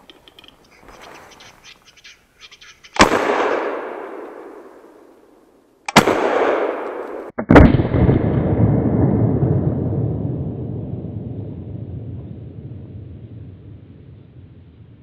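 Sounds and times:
gunshots with echo: 3.0s - 5.2s, 5.9s - 8.3s.

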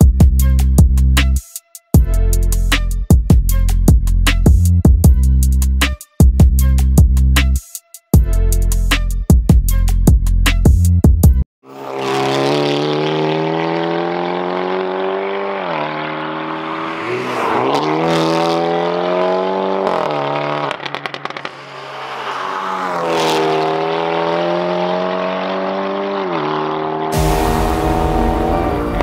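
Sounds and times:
car engine revving hard: 11.7s - 29.0s
exhaust crackles: 27.2s - 29.0s.

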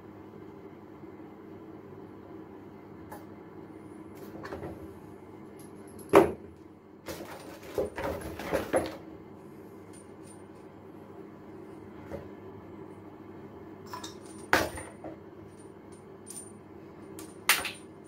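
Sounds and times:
rustling and knocks of parts: 7.1s - 9.0s, 13.9s - 16.5s, 17.1s - 18.0s.

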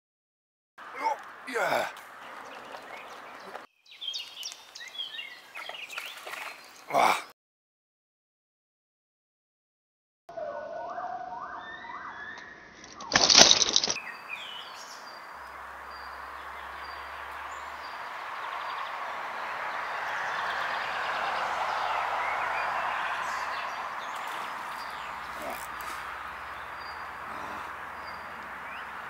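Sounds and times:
birds chirping: 0.8s - 7.3s, 10.4s - 29.0s
river rushing: 14.0s - 29.0s.

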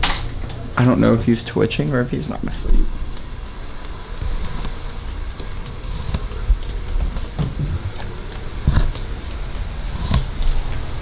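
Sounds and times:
soft footstep thuds: 2.9s - 11.0s.

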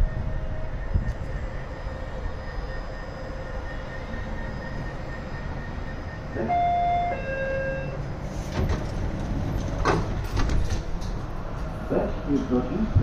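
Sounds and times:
subway train humming: 0.0s - 13.0s
sliding doors closing knocks: 8.5s - 11.2s.

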